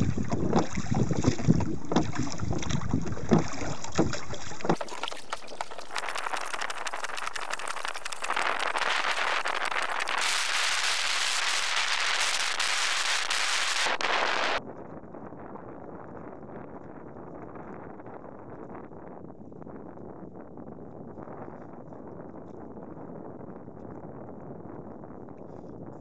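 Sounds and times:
water hissing around a dinghy: 0.0s - 14.6s
wind buffeting microphone: 0.0s - 26.0s.

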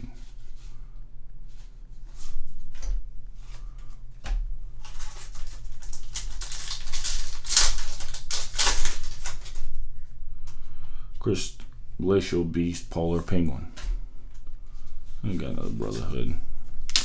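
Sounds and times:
foil wrapper crinkling and tearing: 4.8s - 9.8s.

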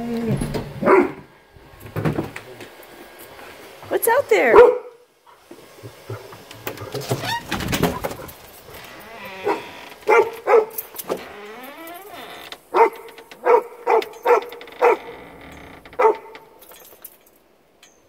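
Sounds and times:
dog barking: 0.8s - 1.3s, 4.5s - 5.0s, 9.4s - 10.9s, 12.7s - 15.1s, 16.0s - 16.4s.

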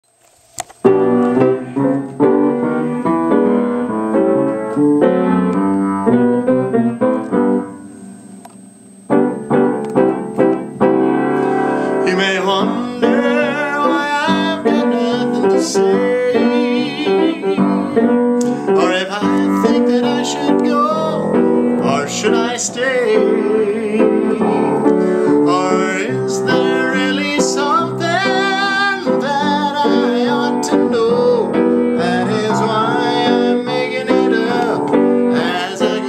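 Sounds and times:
piano chords: 0.8s - 36.0s
man singing: 11.7s - 36.0s.

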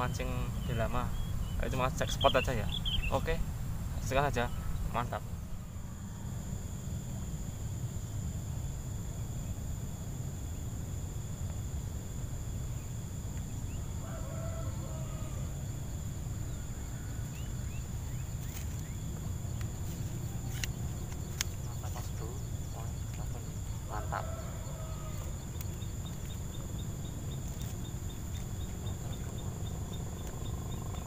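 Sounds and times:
faint bird chirps: 0.0s - 6.4s, 16.1s - 31.0s
high-pitched whine: 0.0s - 31.0s
distant rooster crowing: 4.5s - 6.8s, 13.7s - 18.0s, 22.6s - 26.8s
light clicks: 19.5s - 21.6s.

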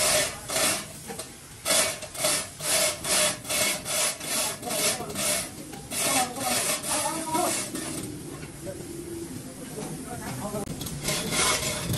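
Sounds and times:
hand tool rasping: 0.0s - 8.0s, 10.7s - 11.9s.

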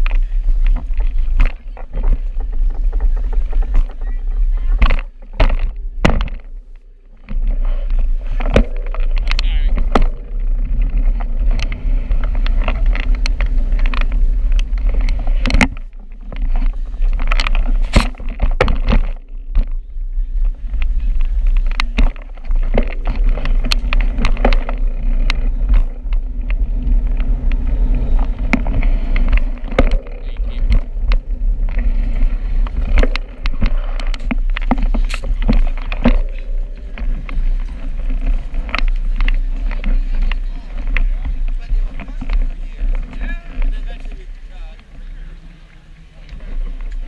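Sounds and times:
bicycle rattles and knocks: 0.0s - 47.0s
wind rumble on microphone: 0.0s - 47.0s.

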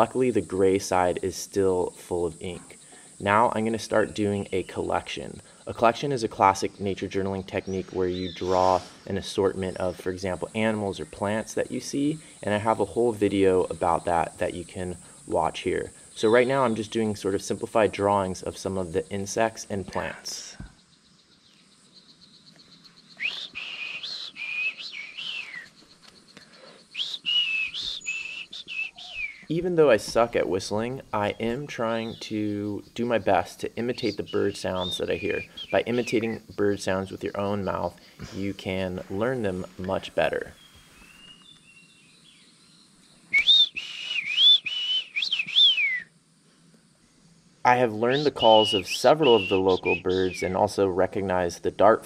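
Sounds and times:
person whistling bird call: 23.2s - 25.7s, 26.9s - 29.5s, 43.3s - 46.1s, 48.1s - 50.6s.

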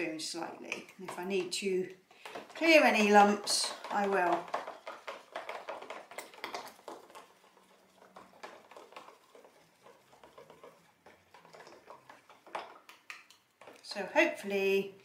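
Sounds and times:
spoon scraping plastic jug: 0.0s - 15.0s.

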